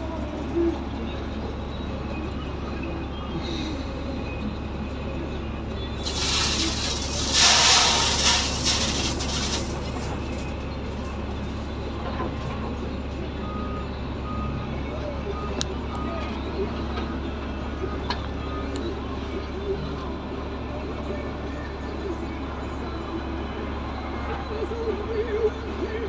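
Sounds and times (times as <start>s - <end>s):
diesel truck engine running: 0.0s - 26.0s
loud hiss of air: 6.1s - 9.6s.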